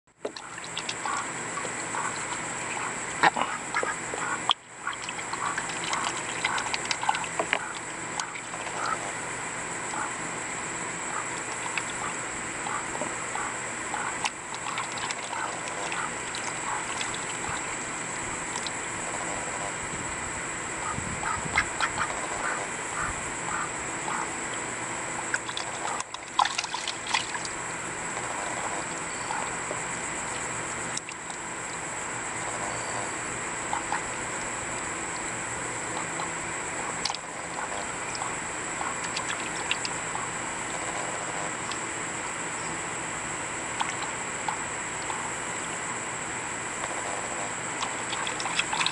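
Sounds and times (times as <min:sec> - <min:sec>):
ducks dabbling and splashing: 0:00.1 - 0:19.9, 0:20.7 - 0:45.8, 0:46.7 - 0:48.9
ducks quacking softly: 0:00.3 - 0:09.2, 0:09.8 - 0:17.8, 0:20.8 - 0:26.2, 0:28.2 - 0:29.7, 0:32.4 - 0:34.3, 0:35.8 - 0:41.7
steady high hiss: 0:00.3 - 0:48.9
wet clicks: 0:30.3 - 0:31.4, 0:37.0 - 0:37.2, 0:39.0 - 0:40.0.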